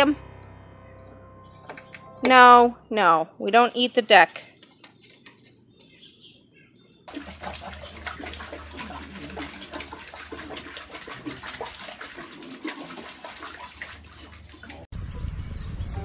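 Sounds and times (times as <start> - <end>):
running water splashing: 7.1 - 14.9.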